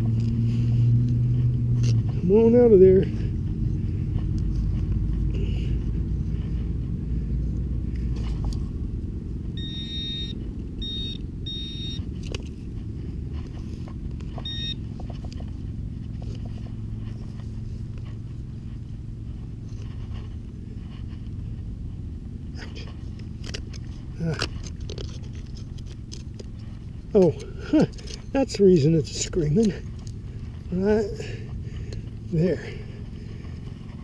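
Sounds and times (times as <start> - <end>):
low rumble: 0.0 - 34.0
metal detector beeping: 9.6 - 12.1, 14.3 - 15.3.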